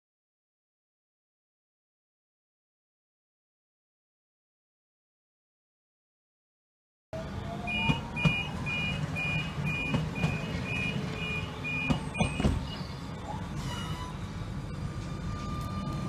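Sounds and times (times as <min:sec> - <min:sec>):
tram rumble: 0:07.2 - 0:16.0
two-pitch door warning beep: 0:07.6 - 0:13.0.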